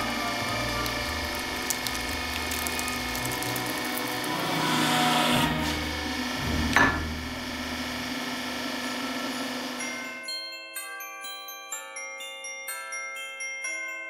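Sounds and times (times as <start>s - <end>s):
hydraulic press running: 0.0s - 9.8s
chocolate and foil snapping: 0.4s - 4.4s.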